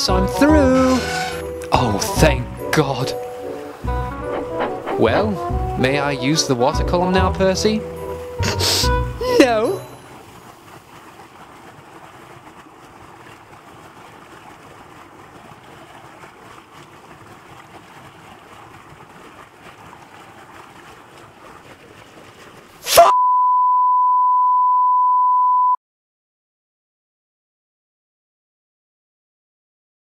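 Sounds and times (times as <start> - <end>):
steady test tone beep: 23.1 - 25.8.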